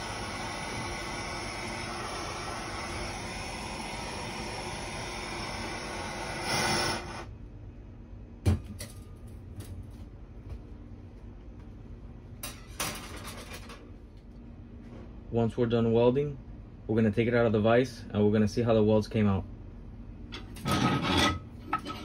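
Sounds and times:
propane torch hissing: 0.0 - 7.3.

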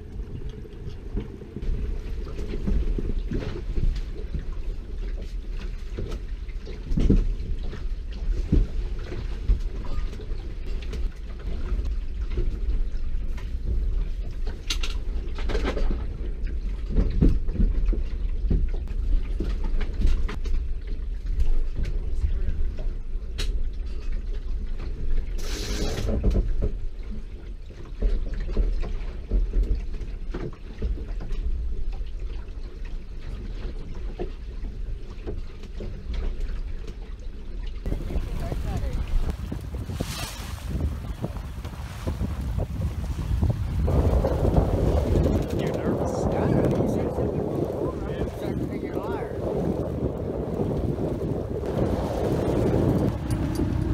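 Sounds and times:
low steady rumble: 0.0 - 25.3, 28.7 - 53.9
short hiss: 25.4 - 26.1.

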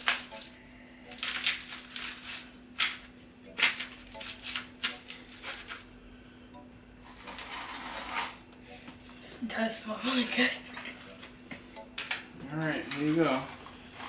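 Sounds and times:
chips crackling and crunching: 0.0 - 5.9, 12.7 - 14.0
steady low hum: 0.0 - 14.0
spatula scraping foil pan: 7.0 - 8.4, 12.8 - 14.0.

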